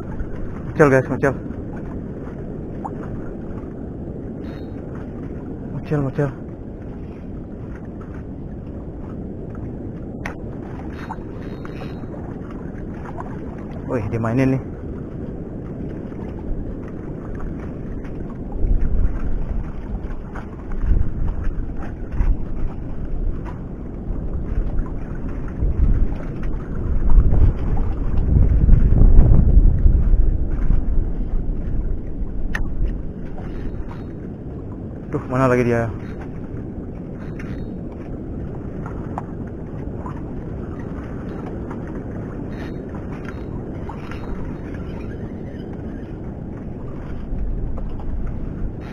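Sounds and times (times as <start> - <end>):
wind buffeting microphone: 0.0 - 48.9
faint light ticks: 32.0 - 34.2.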